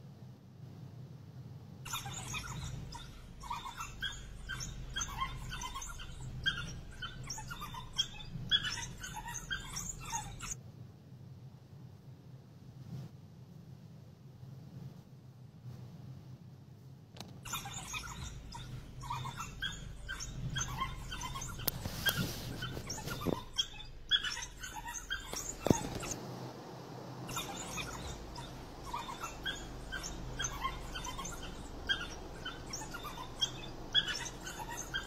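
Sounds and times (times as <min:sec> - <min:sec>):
wild dogs chirping: 0:01.8 - 0:10.6, 0:17.4 - 0:26.2, 0:27.1 - 0:35.0.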